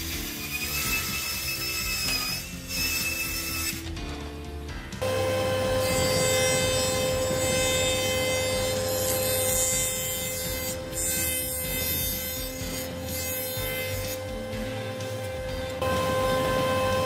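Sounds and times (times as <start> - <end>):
table saw ripping a board: 0.0 - 4.2, 5.0 - 16.9
knives planing wood: 0.0 - 4.3, 5.0 - 16.9
jointer whining: 5.0 - 17.0.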